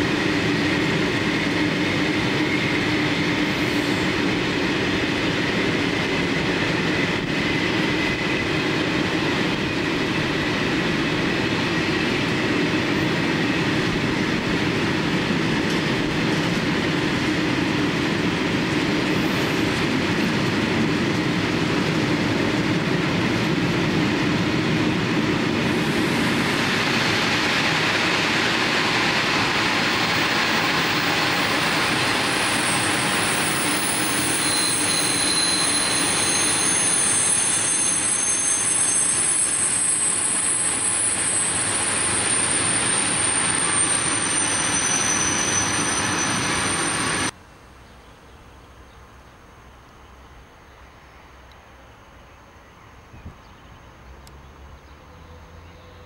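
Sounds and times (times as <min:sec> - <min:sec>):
train wheels rumbling on rails: 0:00.0 - 0:47.4
high-pitched wheel squeal: 0:32.3 - 0:47.3.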